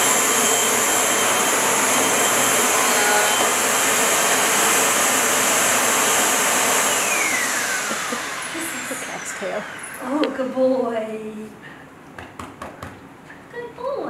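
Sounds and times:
vacuum motor spinning down: 0:00.0 - 0:10.8
vacuum cleaner running: 0:00.0 - 0:11.4.

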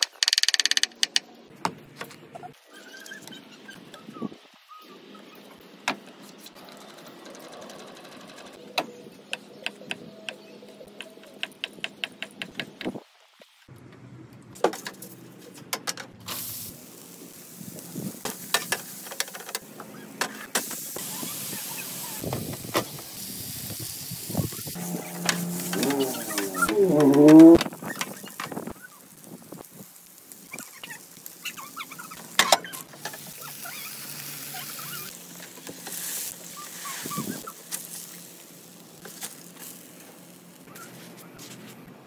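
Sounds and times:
food sizzling on griddle: 0:16.2 - 0:40.7.

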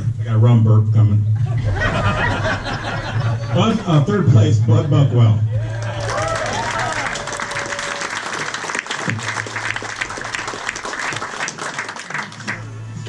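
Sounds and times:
crowd clapping: 0:05.6 - 0:13.0.

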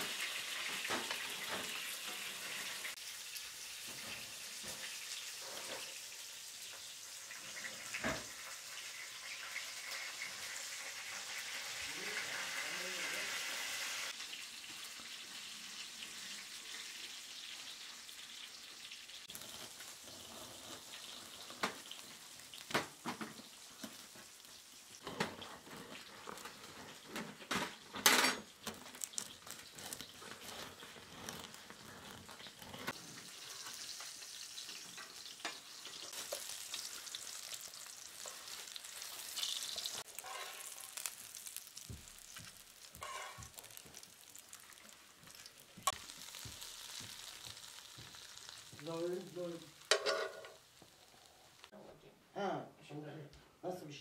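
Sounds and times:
wood fire crackling: 0:00.0 - 0:51.8
sharp crack of fire: 0:36.1 - 0:51.7.

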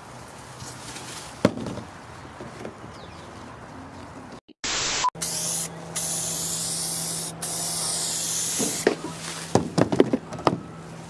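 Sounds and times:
aerosol spray can hissing: 0:04.7 - 0:08.9.

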